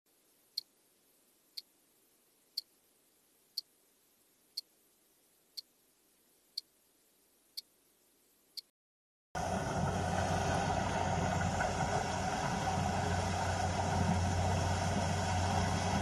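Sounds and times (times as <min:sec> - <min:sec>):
faint hiss: 0:00.1 - 0:08.7.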